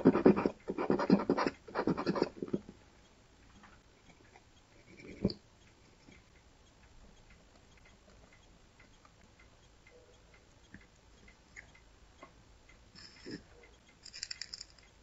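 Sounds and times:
small ticks: 3.0s - 15.0s.

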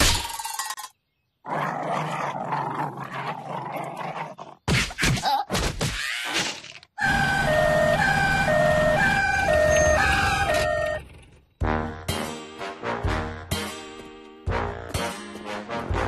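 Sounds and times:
two-tone hee-haw siren: 7.0s - 11.0s.

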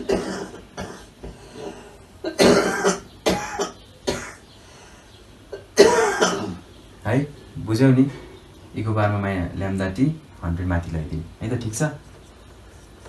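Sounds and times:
man clearing throat: 0.0s - 1.2s, 2.2s - 4.4s, 5.5s - 6.6s
man coughing: 0.0s - 1.2s, 2.2s - 4.4s, 5.5s - 6.6s.

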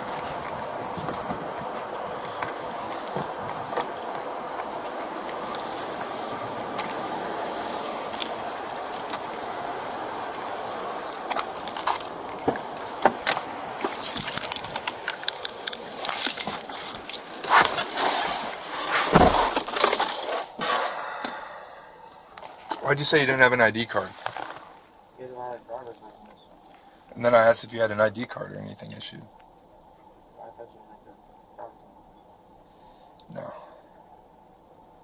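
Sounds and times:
clothing rustling: 0.0s - 21.0s, 24.0s - 25.0s
background hiss: 0.0s - 35.0s
keys and belt gear jangling: 11.5s - 17.8s
dull thump: 18.9s - 19.9s.

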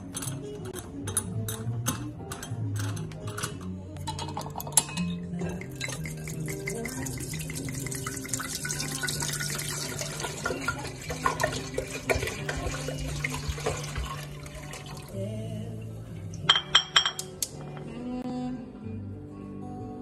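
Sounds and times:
wine pouring into a metal pot: 5.5s - 15.3s.

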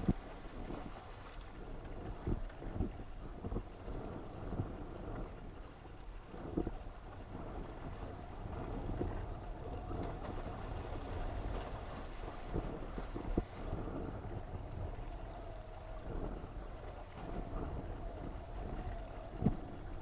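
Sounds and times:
faint steady whine: 0.0s - 20.0s
wind buffeting microphone: 0.0s - 20.0s
water rushing: 6.3s - 20.0s.

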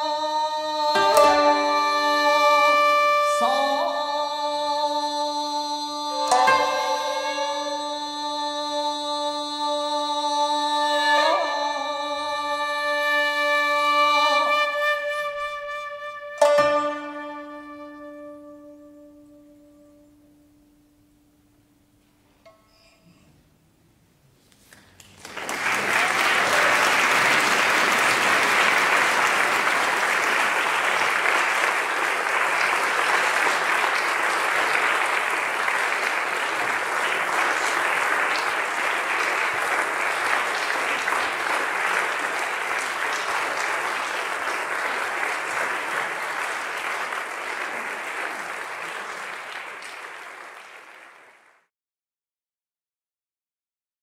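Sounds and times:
large audience applauding: 24.7s - 51.7s.

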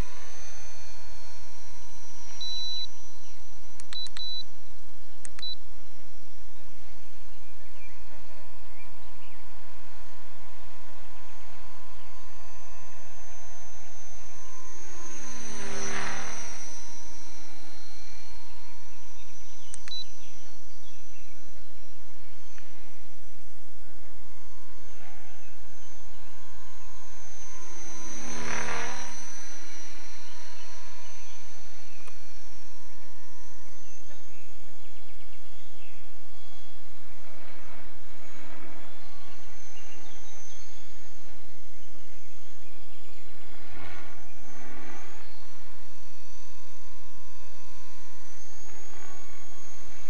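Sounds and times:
propeller aircraft engine whining: 0.0s - 50.0s.

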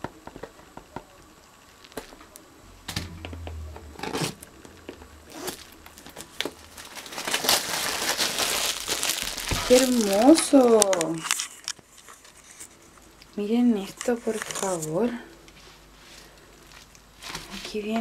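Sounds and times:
plastic wrap crinkling and tearing: 5.4s - 12.6s, 13.9s - 15.1s.

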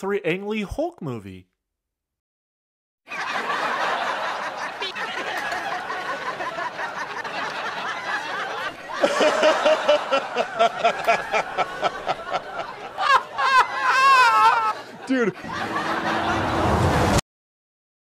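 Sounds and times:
men laughing together: 3.1s - 17.0s
man laughing hard: 8.9s - 16.8s.

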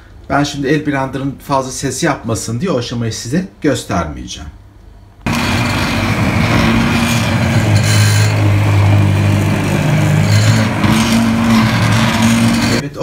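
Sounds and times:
stick blender motor humming: 5.3s - 12.9s.

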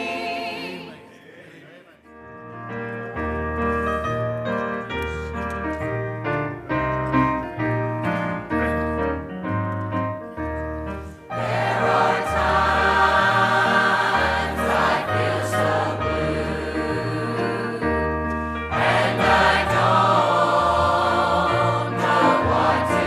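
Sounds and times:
choir singing a hymn: 0.0s - 1.5s, 11.3s - 23.0s
piano accompaniment: 2.1s - 23.0s.

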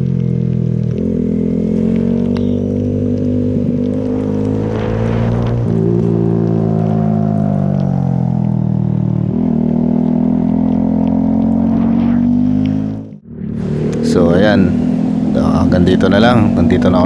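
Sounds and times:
tyres hissing on wet road: 0.0s - 8.2s, 13.5s - 17.0s
motorcycle engine running: 0.0s - 17.0s.

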